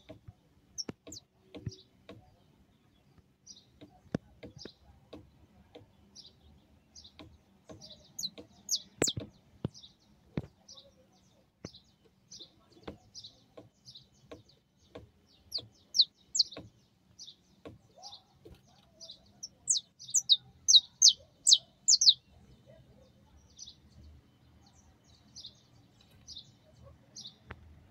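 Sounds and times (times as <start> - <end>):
finch chirping: 0.0 - 22.8
sharp taps: 7.1 - 9.8.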